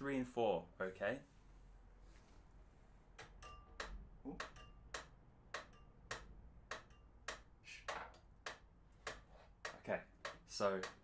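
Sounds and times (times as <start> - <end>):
metronome ticking: 3.2 - 7.5, 8.4 - 11.0.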